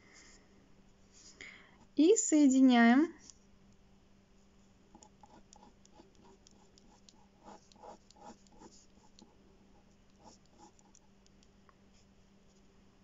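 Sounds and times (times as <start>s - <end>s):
steady low hum: 0.0s - 13.0s
pen scratching on paper: 5.0s - 11.1s.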